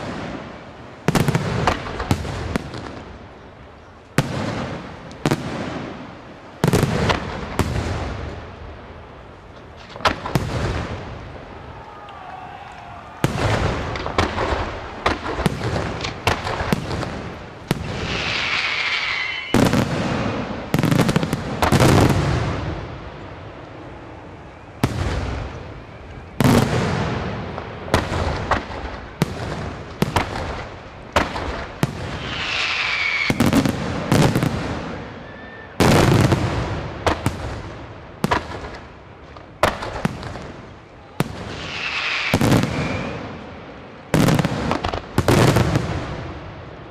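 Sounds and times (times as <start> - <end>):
falling firework whistle: 17.7 - 20.6, 31.8 - 36.3, 41.0 - 43.5.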